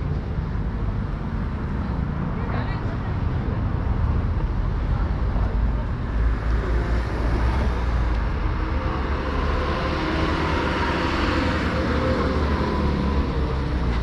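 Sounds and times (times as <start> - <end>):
city street traffic: 0.0 - 14.0
vehicle passing by: 6.3 - 14.0.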